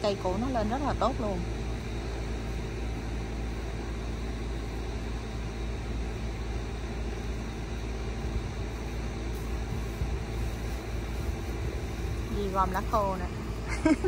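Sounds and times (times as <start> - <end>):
low rumble: 8.2 - 14.0.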